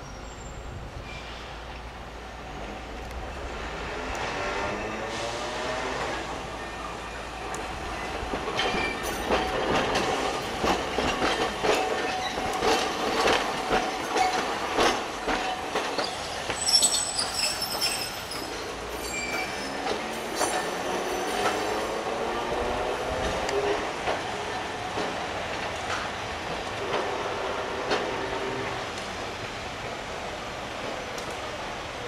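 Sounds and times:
wheels clacking over rail joints: 7.4 - 30.0
wheel squeal: 16.0 - 21.6.

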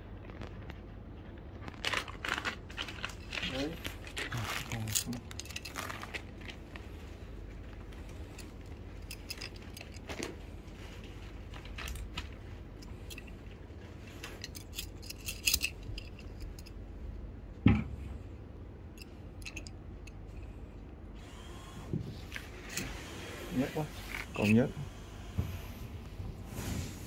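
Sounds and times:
tripod parts clicking and clinking: 3.1 - 6.6, 8.0 - 10.4, 11.5 - 13.4, 14.2 - 16.8, 19.0 - 20.2, 24.1 - 24.7.

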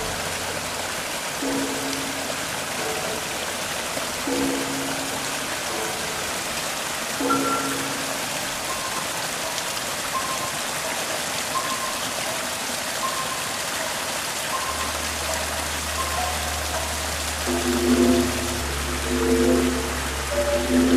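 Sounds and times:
stream splashing over rocks: 0.0 - 20.9
soft music notes: 1.4 - 20.9
low held tone: 17.5 - 20.9.

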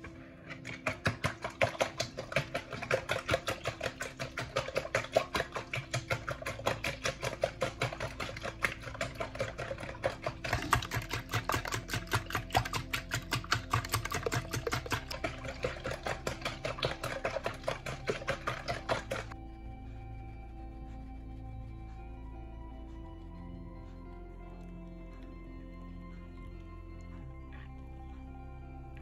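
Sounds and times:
whisk beating eggs in plastic bowl: 0.0 - 19.4.

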